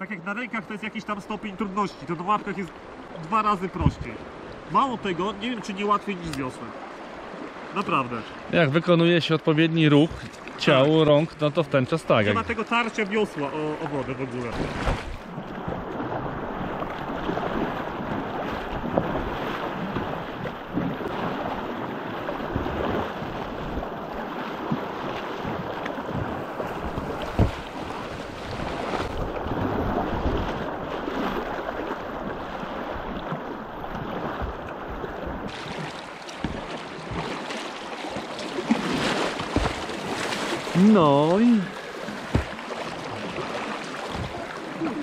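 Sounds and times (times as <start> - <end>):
river water rushing and splashing: 0.0 - 45.0
sharp knock or splash: 14.5 - 15.3, 26.2 - 27.8, 38.6 - 40.8, 42.2 - 42.7.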